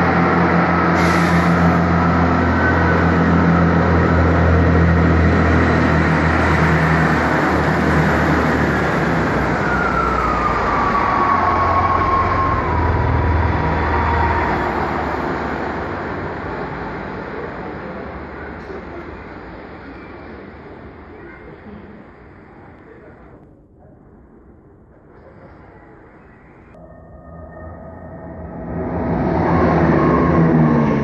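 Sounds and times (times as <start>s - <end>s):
diesel engine drone: 0.0s - 23.4s, 25.1s - 31.0s
rail rumble: 0.0s - 31.0s
whine gliding down in pitch: 26.8s - 31.0s.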